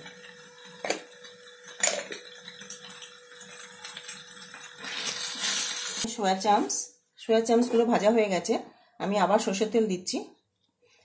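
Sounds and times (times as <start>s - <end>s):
kitchen bowls knocking: 1.8s - 2.2s.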